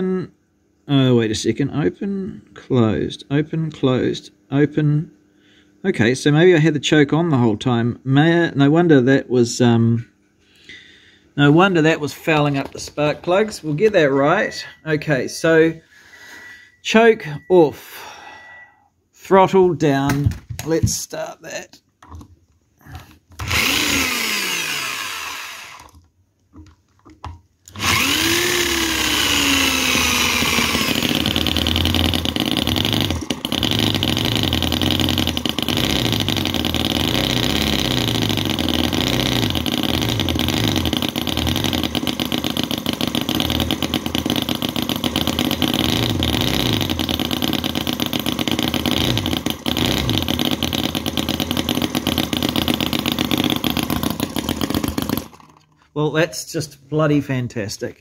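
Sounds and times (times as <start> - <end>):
model engine starting and running: 23.4 - 26.0, 27.7 - 55.7.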